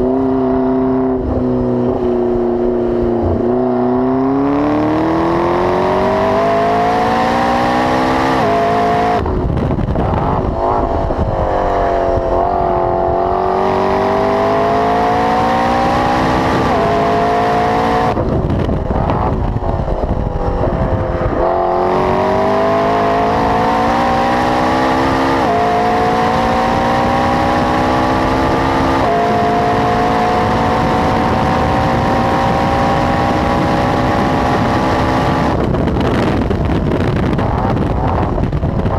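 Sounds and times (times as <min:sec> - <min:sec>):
car engine accelerating through gears: 0:00.0 - 0:38.9
exhaust crackle: 0:18.0 - 0:21.6.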